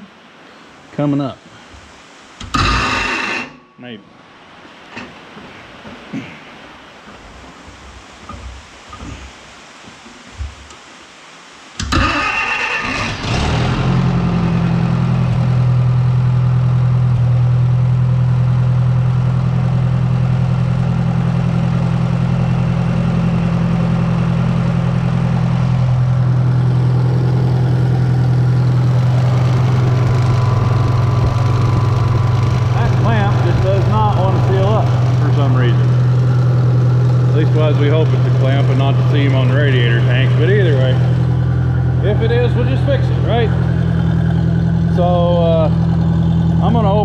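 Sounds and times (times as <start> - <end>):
tractor engine starting and idling: 2.4 - 3.5, 11.8 - 47.0.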